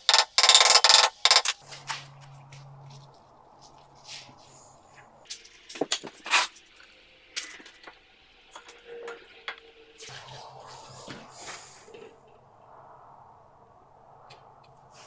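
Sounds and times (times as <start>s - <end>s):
knocks and scrapes of blocks: 0.0s - 2.0s.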